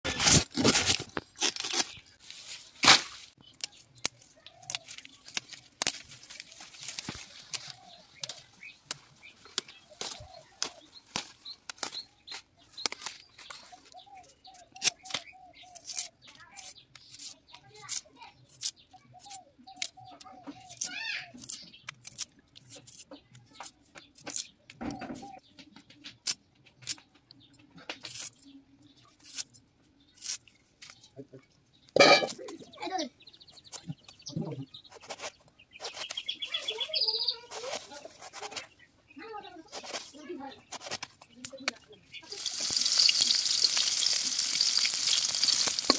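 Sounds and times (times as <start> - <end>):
plant stalks tearing: 0.1 - 13.9, 14.7 - 24.5, 27.9 - 28.4, 29.0 - 29.6, 30.2 - 31.0, 34.9 - 36.8, 37.5 - 38.7, 39.7 - 41.6, 42.3 - 45.9
stems snapping when cut: 2.8 - 13.2, 14.7 - 16.1, 18.6 - 23.0, 23.6 - 24.5
knife scraping vegetable stalk: 14.8 - 24.5, 28.0 - 28.4, 29.1 - 29.6, 30.2 - 30.5, 34.9 - 38.7, 39.7 - 41.2.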